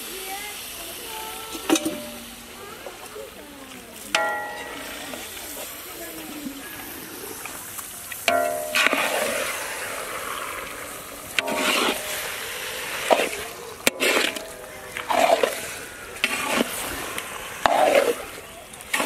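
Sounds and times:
ladle scraping iron pan: 0:01.5 - 0:02.6, 0:04.0 - 0:05.8, 0:08.2 - 0:19.0.

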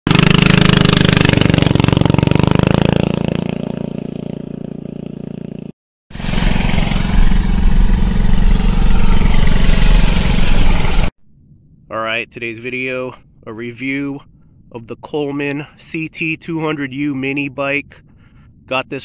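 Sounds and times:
mini bike engine running: 0:00.1 - 0:11.1
low rumble inside moving car: 0:06.2 - 0:11.1.

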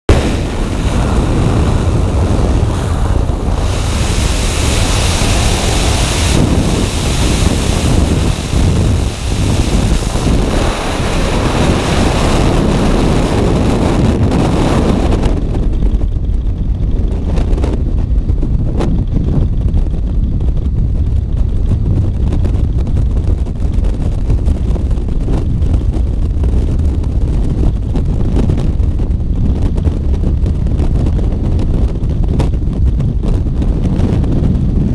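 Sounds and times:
wind roar on microphone: 0:00.1 - 0:34.9.

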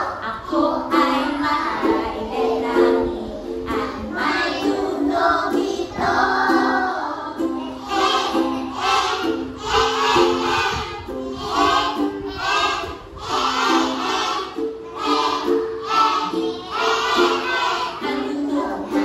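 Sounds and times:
woman singing: 0:00.0 - 0:07.6, 0:18.0 - 0:19.0
ukulele strumming: 0:00.0 - 0:19.0
young children singing: 0:00.0 - 0:19.0.

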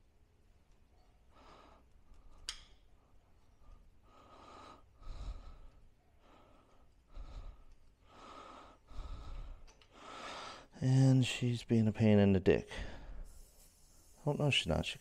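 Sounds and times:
man breathing heavily: 0:01.3 - 0:10.8, 0:12.7 - 0:13.5.

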